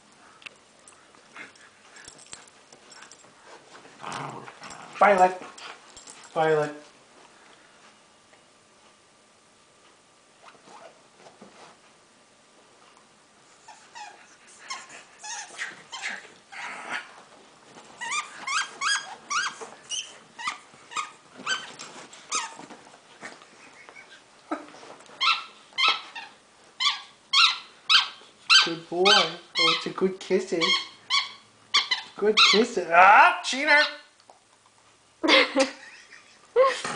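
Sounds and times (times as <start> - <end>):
dog squeaky yips and whines: 13.6 - 17.1, 18.0 - 22.7, 25.2 - 29.9, 30.6 - 32.7.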